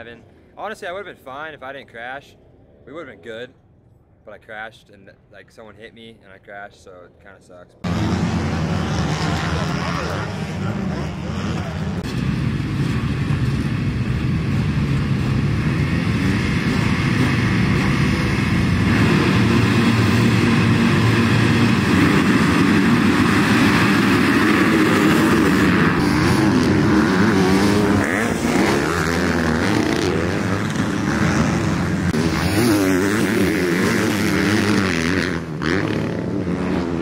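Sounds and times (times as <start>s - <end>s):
dirt bike engines revving: 7.8s - 37.0s.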